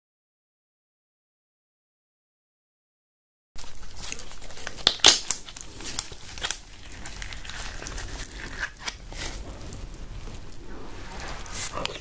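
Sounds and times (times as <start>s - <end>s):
crab shell cracking: 3.6s - 9.8s.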